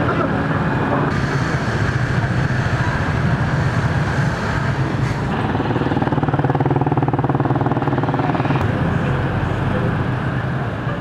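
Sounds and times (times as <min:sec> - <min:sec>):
street traffic noise: 0:00.0 - 0:11.0
small motorcycle engine: 0:04.8 - 0:08.7.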